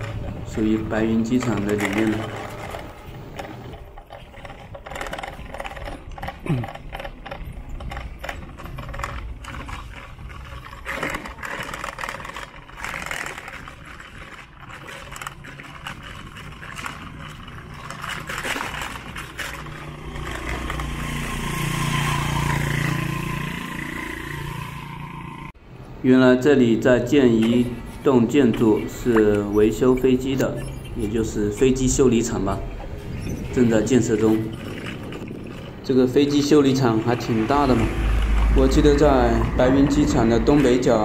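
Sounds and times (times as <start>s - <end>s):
engine rumble: 0.0s - 41.0s
outdoor street noise: 0.0s - 41.0s.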